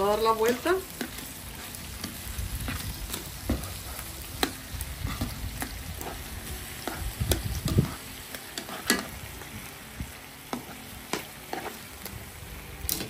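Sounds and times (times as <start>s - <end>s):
meat sizzling in a pan: 0.0s - 13.0s
metal tongs clicking and scraping: 8.5s - 9.1s.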